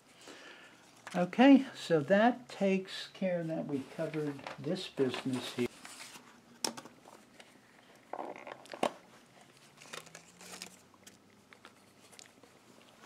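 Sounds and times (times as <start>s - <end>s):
paper rustle: 3.8s - 6.4s, 9.4s - 12.4s.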